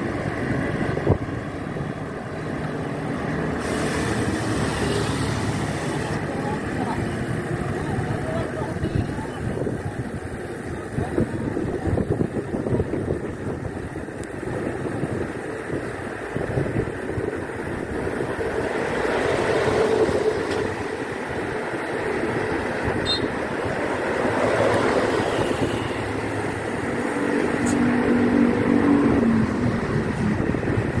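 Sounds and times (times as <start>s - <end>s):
road traffic rumble: 0.0s - 31.0s
vehicle engine drone: 0.0s - 31.0s
wind on microphone: 7.4s - 31.0s.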